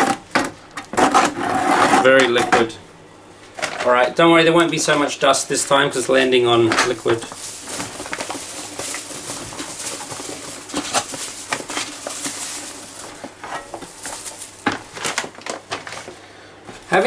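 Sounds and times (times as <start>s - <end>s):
trowel scraping in bucket: 0.9s - 2.2s
bag rustling: 5.6s - 17.0s.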